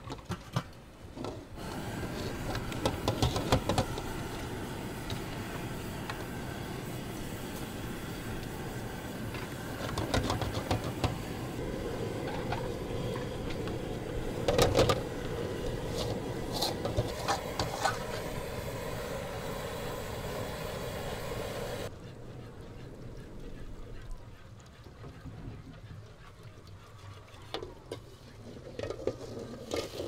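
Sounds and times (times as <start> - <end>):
steady hum: 1.6 - 23.8.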